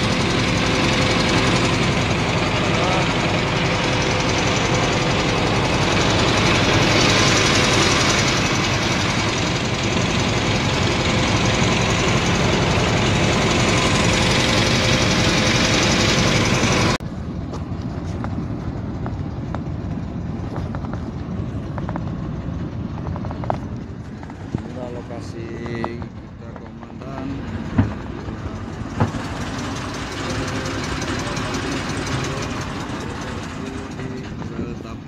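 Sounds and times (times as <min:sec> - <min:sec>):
boat engine running: 0:00.0 - 0:35.0.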